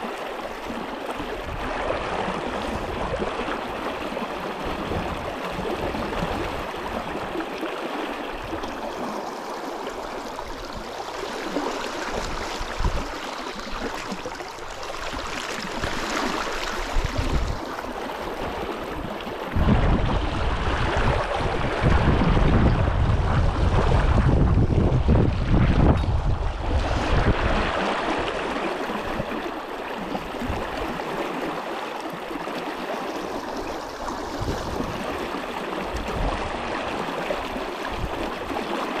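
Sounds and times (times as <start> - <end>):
brook water rushing: 0.0 - 39.0
wind buffeting microphone: 16.7 - 29.5, 33.4 - 38.6.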